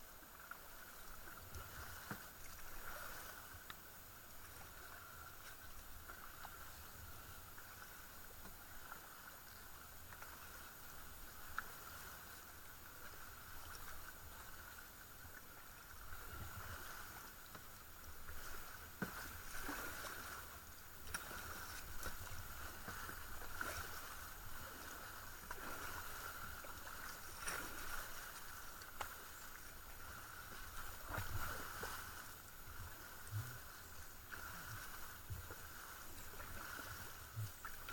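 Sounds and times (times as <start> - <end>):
kayak paddle strokes in water: 0.0 - 37.9
water splashes and drips: 18.3 - 33.6.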